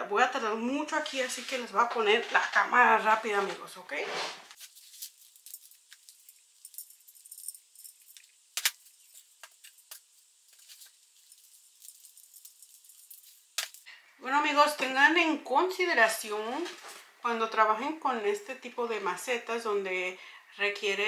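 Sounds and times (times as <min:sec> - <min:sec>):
potting soil scooped and poured: 0:00.9 - 0:06.4.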